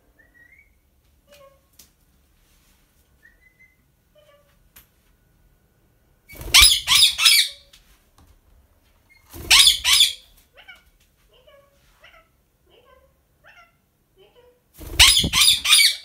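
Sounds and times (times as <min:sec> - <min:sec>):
parakeet screeching: 0:06.4 - 0:07.6, 0:09.5 - 0:10.2, 0:14.9 - 0:16.0.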